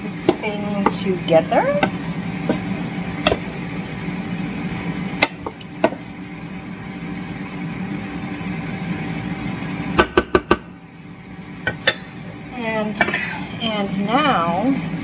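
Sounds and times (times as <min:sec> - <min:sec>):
wooden spoon stirring in a pan: 0:00.0 - 0:03.8
steady hum: 0:00.0 - 0:15.0.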